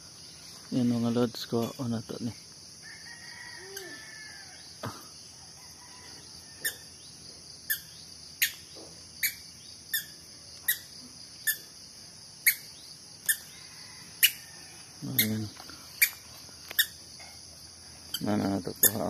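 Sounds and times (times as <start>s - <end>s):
crickets and insects droning: 0.0s - 19.0s.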